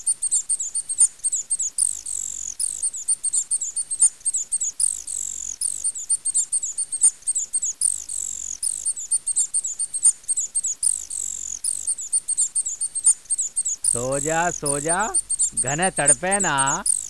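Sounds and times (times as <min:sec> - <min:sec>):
high-pitched chirps: 0:13.9 - 0:17.0.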